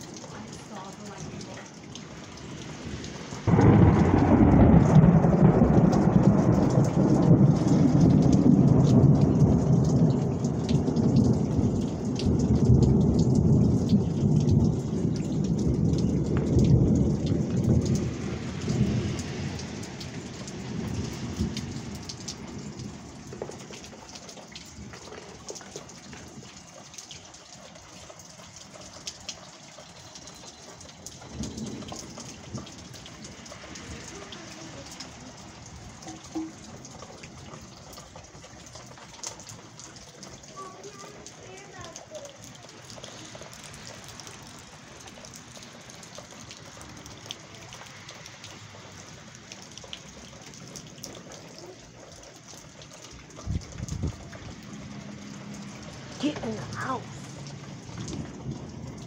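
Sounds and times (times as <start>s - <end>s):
steady rain: 0.0s - 59.0s
thunder clap and rumble: 2.5s - 25.1s, 53.2s - 59.0s.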